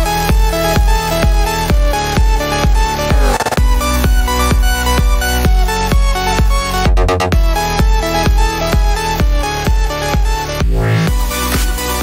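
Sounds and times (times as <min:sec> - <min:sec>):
electronic music with heavy beat: 0:00.0 - 0:12.0
sweeping effect: 0:01.4 - 0:06.0.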